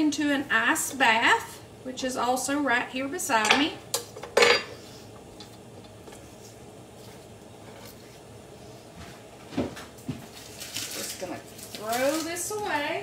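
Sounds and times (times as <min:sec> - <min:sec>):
kitchen background noise: 0:00.0 - 0:13.0
kitchen utensil clatter: 0:04.3 - 0:04.8.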